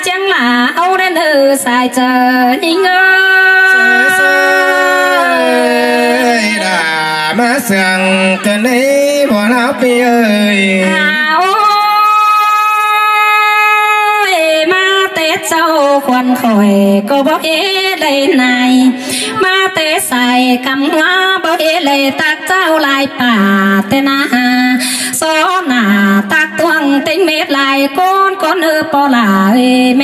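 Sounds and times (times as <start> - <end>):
man singing: 3.6 - 11.2.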